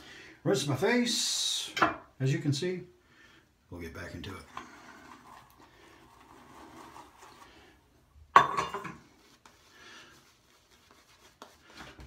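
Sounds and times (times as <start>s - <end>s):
shaving brush scrubbing: 5.0s - 7.6s, 9.2s - 12.0s.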